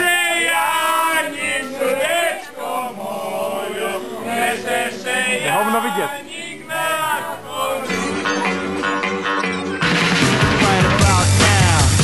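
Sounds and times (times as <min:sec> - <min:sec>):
people singing together: 0:00.0 - 0:09.2.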